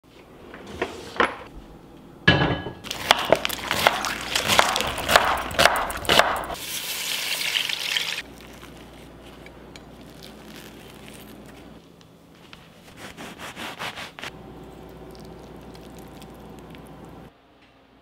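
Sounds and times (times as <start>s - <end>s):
knife chopping on wooden board: 3.0s - 6.6s.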